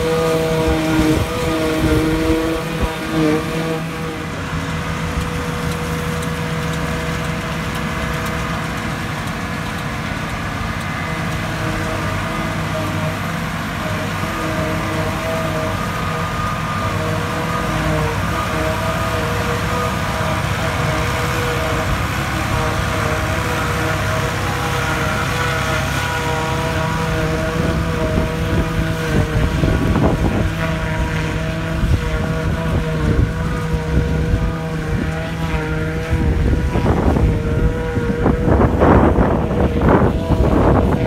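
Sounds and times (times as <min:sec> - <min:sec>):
forage harvester running: 0:00.0 - 0:41.0
grass blown into trailer: 0:00.0 - 0:41.0
tractor engines running: 0:00.0 - 0:41.0
wind buffeting microphone: 0:26.5 - 0:41.0.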